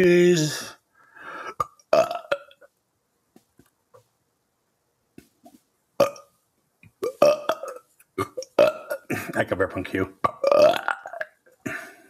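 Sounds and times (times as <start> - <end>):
man burping: 1.4 - 2.6, 6.0 - 6.3, 7.0 - 9.4, 10.2 - 12.0.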